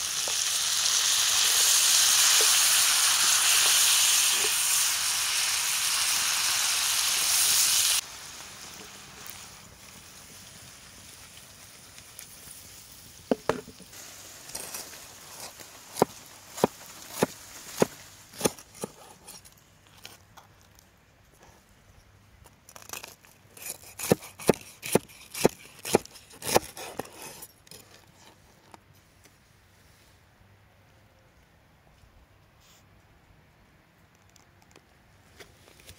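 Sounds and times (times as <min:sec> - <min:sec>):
frying sizzle in a skillet: 0:00.0 - 0:18.0
knife cutting crisp crust: 0:22.7 - 0:28.3.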